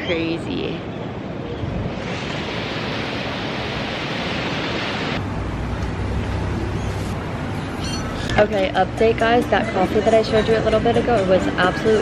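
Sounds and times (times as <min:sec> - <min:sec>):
ocean surf breaking on beach: 0:01.9 - 0:05.2.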